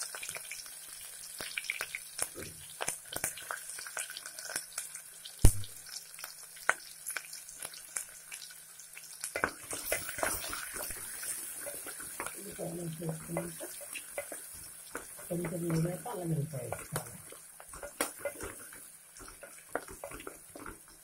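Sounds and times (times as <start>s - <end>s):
onions sizzling in hot oil: 0.0s - 21.0s
wooden spatula stirring onions: 9.3s - 21.0s.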